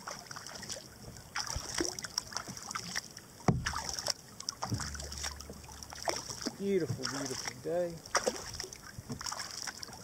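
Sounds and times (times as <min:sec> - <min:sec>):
paddle splashing in water: 0:00.0 - 0:10.0
paddle knock: 0:03.4 - 0:04.0, 0:04.6 - 0:09.5.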